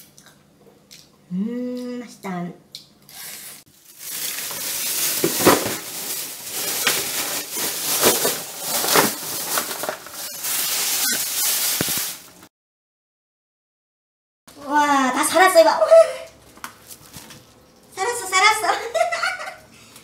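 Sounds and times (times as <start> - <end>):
plastic bags crinkling: 3.7 - 12.5.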